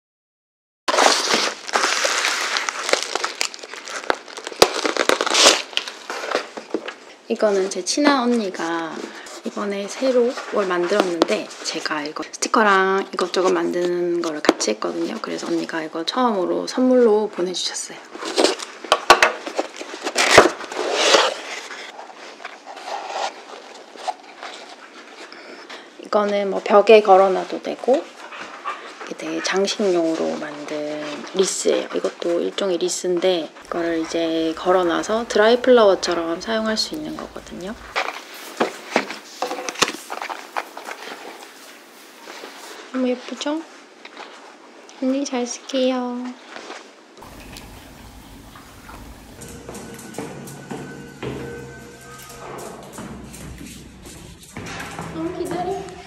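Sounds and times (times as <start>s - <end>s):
cardboard and paper rustling: 0.9s - 7.7s, 18.1s - 25.6s, 33.6s - 43.4s
plastic crinkling and crackling: 0.9s - 11.8s, 33.6s - 49.7s
handling burlap and twine: 33.6s - 42.9s.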